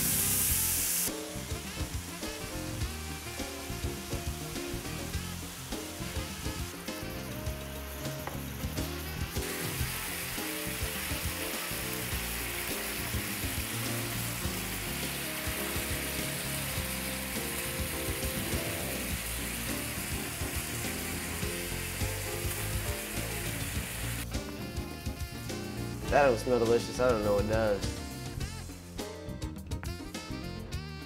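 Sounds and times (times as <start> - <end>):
burger patties sizzling on griddle: 0.0 - 24.7
music with bass line: 0.0 - 31.0.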